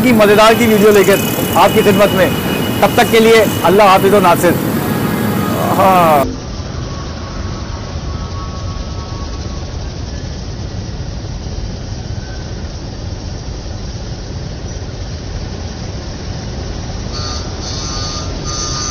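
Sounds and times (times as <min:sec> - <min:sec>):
low rumble of street traffic: 0:00.0 - 0:18.9.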